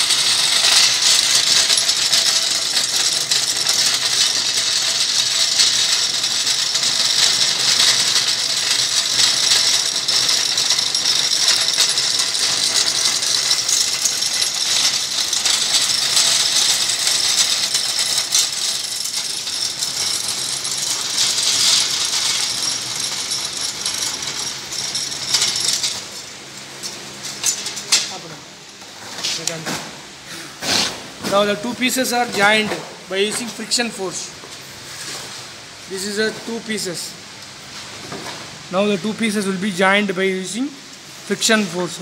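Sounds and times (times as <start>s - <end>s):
friction welder metallic rattle: 0.0s - 28.2s.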